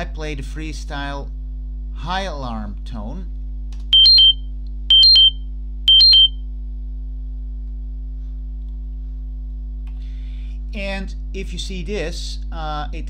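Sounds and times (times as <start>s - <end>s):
electronic alarm beeps: 4.0s - 6.4s.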